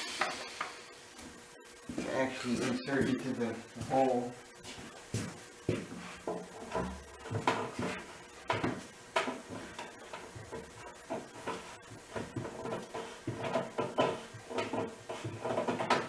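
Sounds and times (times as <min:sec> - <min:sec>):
wood rubbing: 0:04.7 - 0:16.0
hollow wooden knocks: 0:05.2 - 0:16.0.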